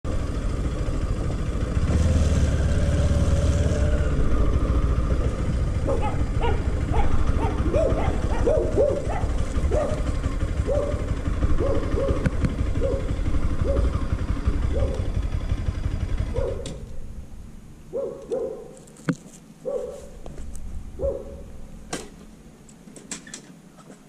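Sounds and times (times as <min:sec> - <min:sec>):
motorcycle engine rumble: 0:00.0 - 0:24.0
wind: 0:00.0 - 0:24.0
dog barking: 0:05.8 - 0:14.0, 0:14.7 - 0:15.1, 0:16.3 - 0:16.8, 0:17.9 - 0:18.8, 0:19.6 - 0:20.2, 0:21.0 - 0:21.5.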